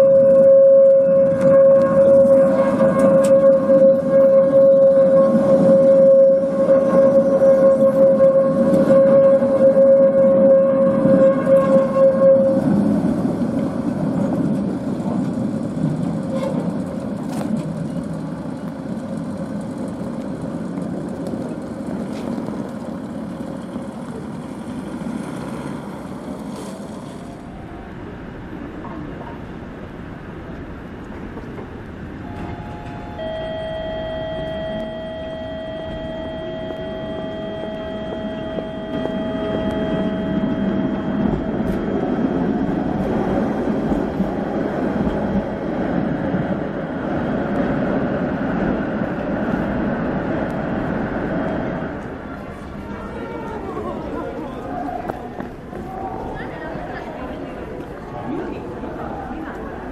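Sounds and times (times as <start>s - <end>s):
steady high tones: 0.0s - 12.5s, 32.2s - 43.1s
tram wheels rumbling on rails: 0.0s - 59.9s.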